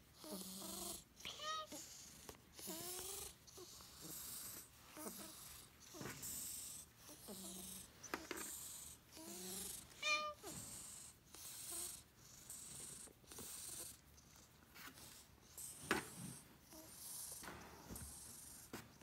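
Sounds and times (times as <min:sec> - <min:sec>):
cat meow: 0:01.3 - 0:01.8, 0:10.0 - 0:10.5.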